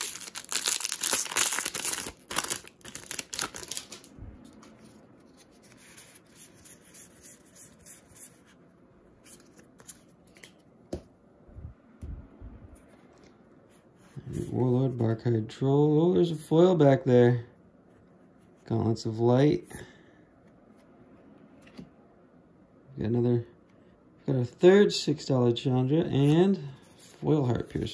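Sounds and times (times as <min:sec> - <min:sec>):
foil pack crinkling: 0:00.0 - 0:04.1.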